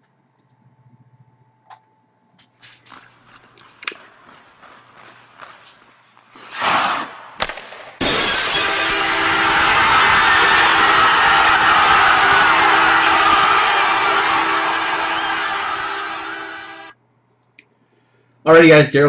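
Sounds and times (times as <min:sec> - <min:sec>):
glass breaking crash: 0:08.0 - 0:09.3
loud steady roar: 0:09.0 - 0:16.9.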